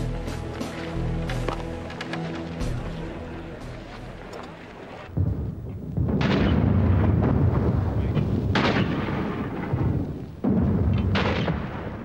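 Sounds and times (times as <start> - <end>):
heavy rumbling: 0.0 - 12.0
artillery booms: 5.1 - 12.0.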